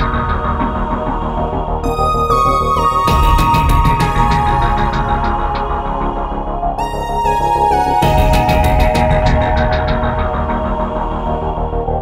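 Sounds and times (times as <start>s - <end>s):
background music with fast beat: 0.0s - 12.0s.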